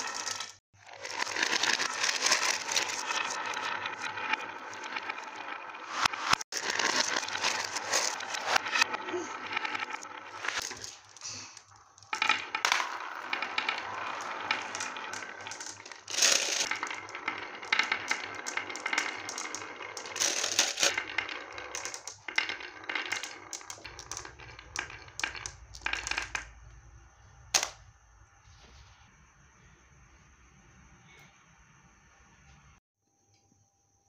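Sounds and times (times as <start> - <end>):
marbles rolling and clacking: 0.0 - 26.8, 27.5 - 27.8.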